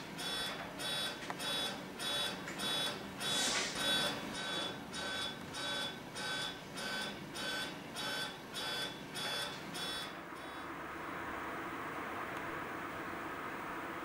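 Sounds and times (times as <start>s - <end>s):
electronic alarm beeping: 0.2s - 10.7s.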